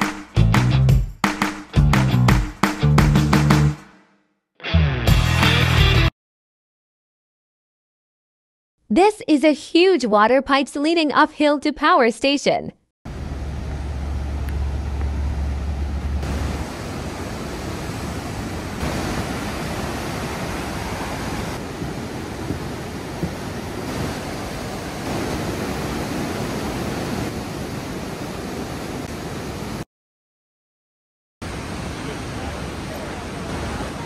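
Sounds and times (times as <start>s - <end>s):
heavy low rumble: 13.1s - 16.7s
waterfall and river rushing: 13.1s - 29.8s, 31.4s - 34.0s.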